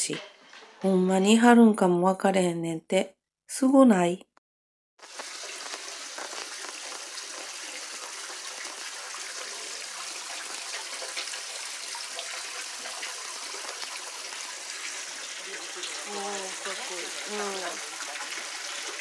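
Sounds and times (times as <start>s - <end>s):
water pouring into basin: 5.0s - 19.0s
water splashing: 5.0s - 19.0s.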